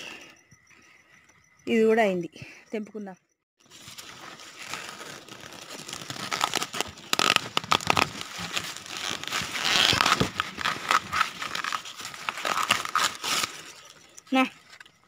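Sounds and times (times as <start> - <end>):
corn leaves rustling and crackling: 3.7 - 14.8.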